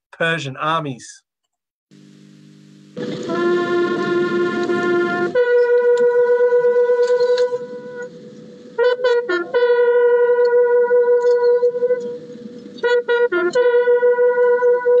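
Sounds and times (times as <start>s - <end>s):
fanfare trumpets: 3.0s - 12.2s, 12.8s - 15.0s.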